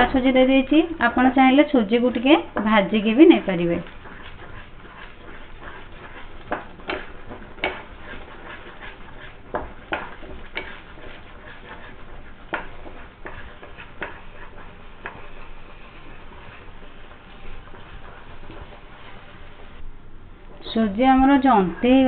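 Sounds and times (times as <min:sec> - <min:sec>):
spatula scraping a frying pan: 0:02.6 - 0:19.8.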